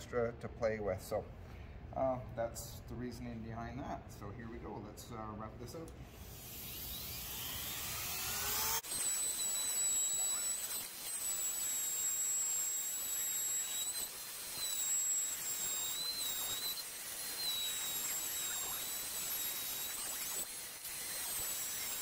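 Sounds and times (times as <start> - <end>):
router high-pitched whine: 6.1 - 22.0.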